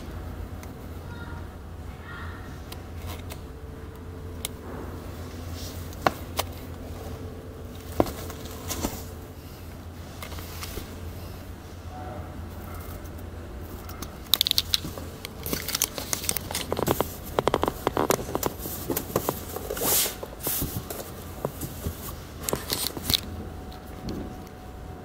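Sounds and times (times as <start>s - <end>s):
tablet handling rustling and clicks: 2.7s - 3.5s, 5.4s - 9.2s, 10.1s - 11.0s, 12.7s - 24.6s.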